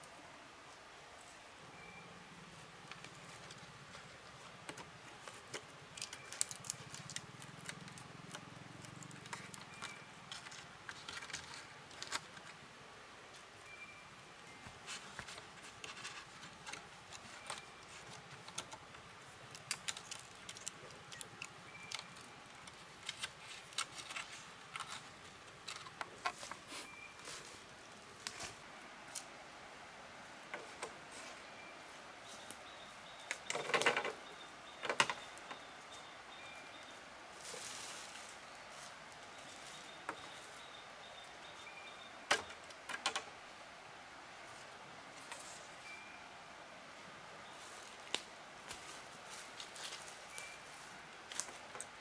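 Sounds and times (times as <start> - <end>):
faint high chirp: 1.6 - 2.5, 6.0 - 6.6, 9.2 - 10.3, 13.6 - 14.8, 17.2 - 18.1, 21.1 - 22.7, 26.7 - 27.6, 31.1 - 42.6, 45.3 - 46.7, 50.2 - 50.9
hand work clicks and rustles: 4.6 - 12.6, 14.9 - 26.7.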